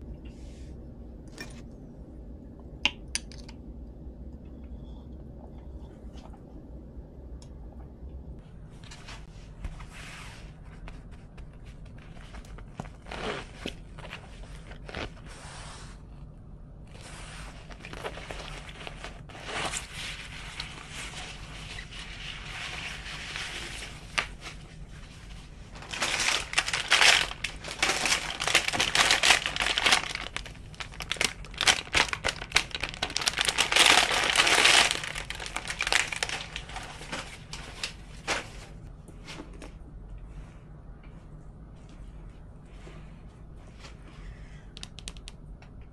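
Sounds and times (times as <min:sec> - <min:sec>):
fabric bag rustling: 0:12.1 - 0:15.5, 0:16.9 - 0:38.8.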